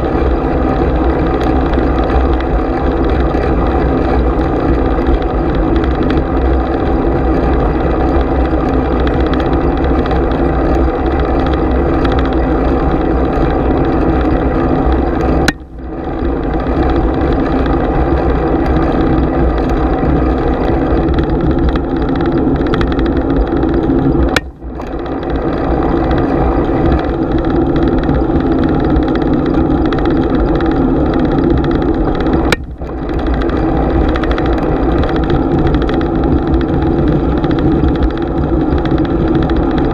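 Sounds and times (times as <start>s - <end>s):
wind and tyres on road: 0.0s - 39.9s.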